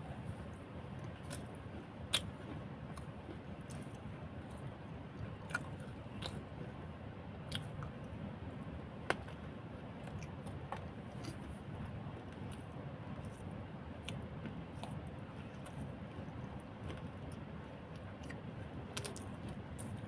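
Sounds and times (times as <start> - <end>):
person chewing food: 1.0 - 4.6, 5.4 - 6.6, 7.5 - 8.0, 10.0 - 20.0.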